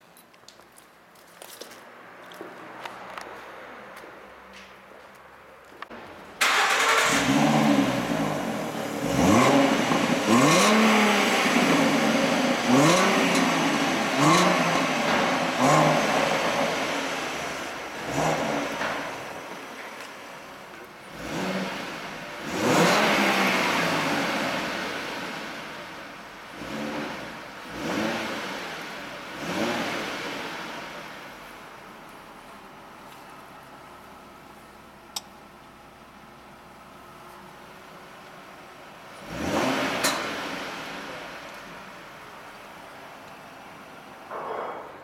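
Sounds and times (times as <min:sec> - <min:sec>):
car engine revving: 0:06.4 - 0:19.5, 0:21.0 - 0:31.4, 0:39.1 - 0:42.6.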